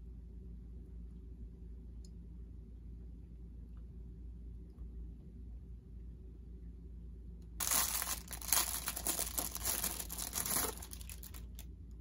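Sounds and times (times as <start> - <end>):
plastic bag crinkling: 7.6 - 11.7.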